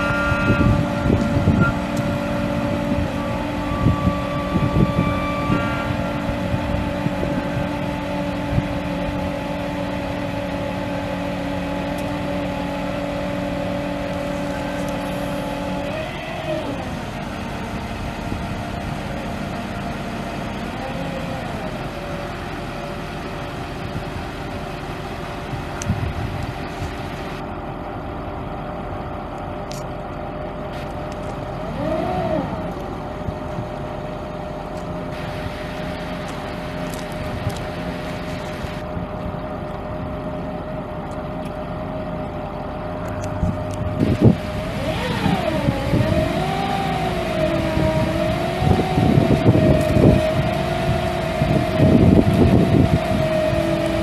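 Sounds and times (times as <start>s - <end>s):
diesel truck engine idling: 0.0s - 54.0s.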